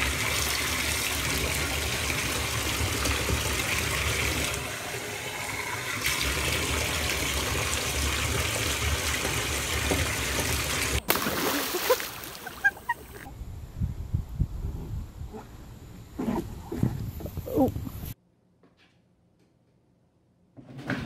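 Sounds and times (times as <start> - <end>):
water running into a bathtub: 0.0 - 12.7.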